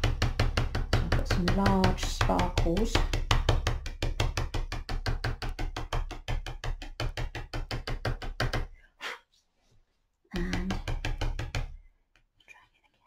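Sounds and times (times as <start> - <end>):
pastel tapping on paper: 0.0 - 8.7, 10.4 - 11.8.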